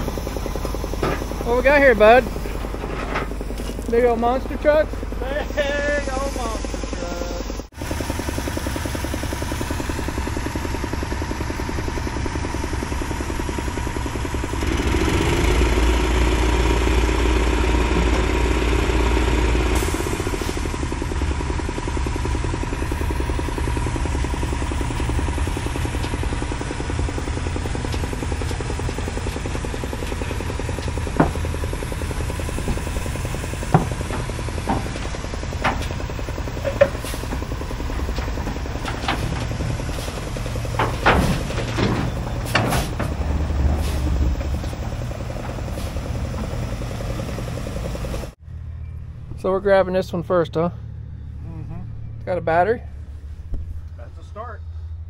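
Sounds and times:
truck engine under load: 0:00.0 - 0:55.0
sharp knocks: 0:30.9 - 0:31.8, 0:32.6 - 0:36.1.

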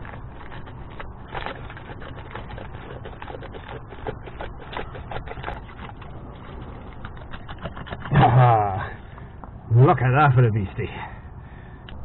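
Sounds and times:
wet stones and gravel scraping: 0:00.0 - 0:09.2.

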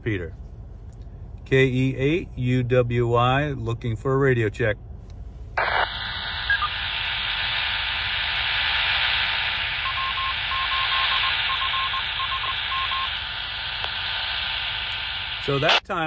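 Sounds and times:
radio static hiss: 0:05.6 - 0:16.0
morse code beeps: 0:06.4 - 0:06.8, 0:09.6 - 0:13.6.

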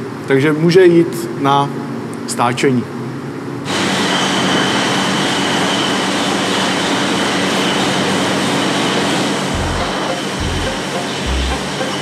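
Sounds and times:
thin high whine: 0:05.4 - 0:12.0
rattling humming machinery: 0:06.4 - 0:12.0.

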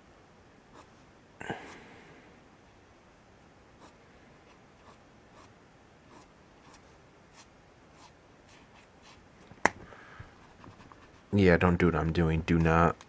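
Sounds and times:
pencil scratching on paper: 0:03.8 - 0:05.5, 0:06.1 - 0:09.2.

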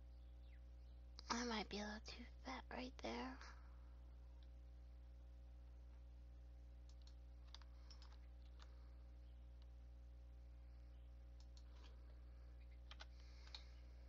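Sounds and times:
steady low hum: 0:00.0 - 0:14.0
mouse and keyboard clicks: 0:06.9 - 0:08.7, 0:12.6 - 0:13.7.

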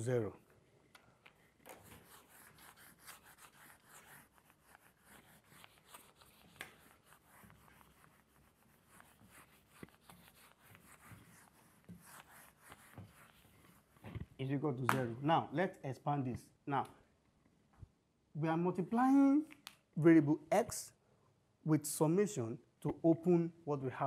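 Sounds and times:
eraser rubbing on whiteboard: 0:01.7 - 0:14.3.

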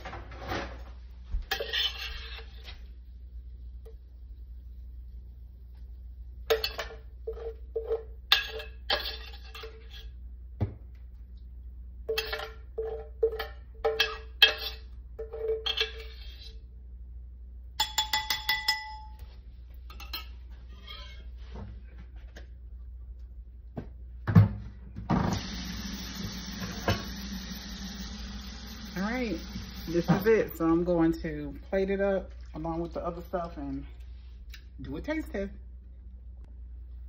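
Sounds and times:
utensil scraping steel skillet: 0:01.5 - 0:02.9, 0:06.5 - 0:10.2, 0:12.1 - 0:16.6, 0:19.9 - 0:21.4
taps on ringing pan: 0:17.8 - 0:19.2.

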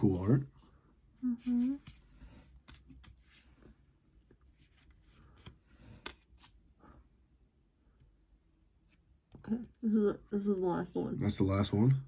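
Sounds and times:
cards rustling: 0:01.4 - 0:03.7, 0:04.3 - 0:06.8.

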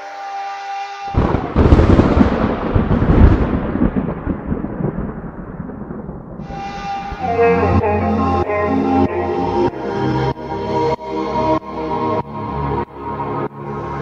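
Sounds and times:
loud deep boom: 0:01.2 - 0:07.3
sustained musical chord: 0:06.5 - 0:14.0.

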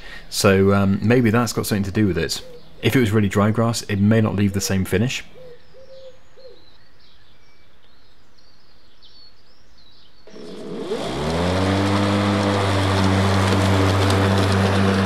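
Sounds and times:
lawnmower motor humming: 0:10.3 - 0:15.0.

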